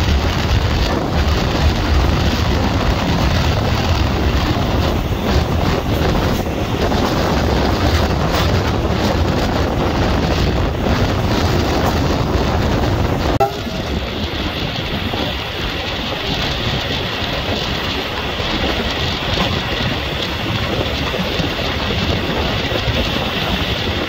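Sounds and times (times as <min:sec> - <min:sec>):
train running along track: 0:00.0 - 0:24.0
wind buffeting microphone: 0:00.0 - 0:24.0.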